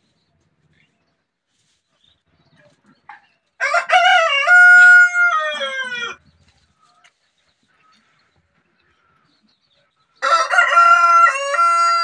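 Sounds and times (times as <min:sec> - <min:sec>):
rooster crowing: 0:03.6 - 0:06.2, 0:10.2 - 0:12.0.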